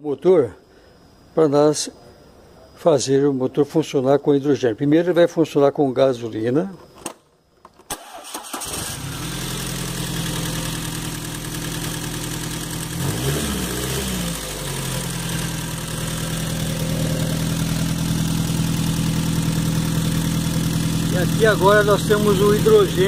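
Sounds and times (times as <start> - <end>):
engine cranking on starter: 7.9 - 11.1
car engine idling: 9.0 - 23.0.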